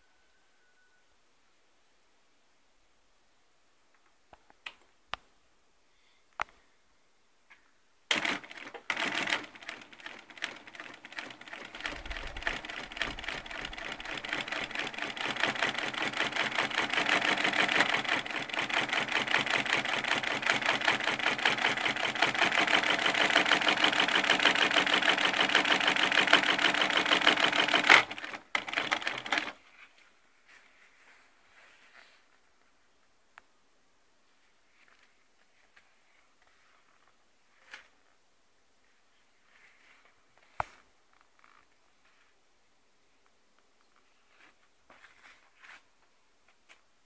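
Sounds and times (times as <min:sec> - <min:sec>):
industrial sewing machine clatter: 0:08.1 - 0:29.6.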